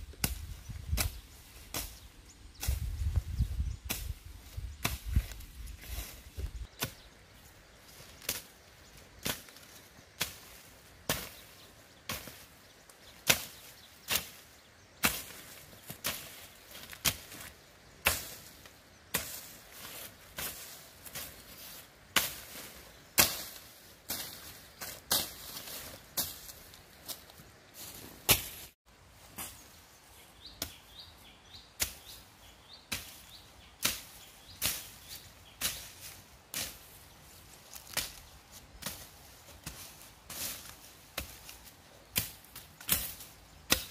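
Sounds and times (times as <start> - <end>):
blade chopping into dry brush: 13.2 - 14.4, 28.3 - 28.7, 39.6 - 43.9.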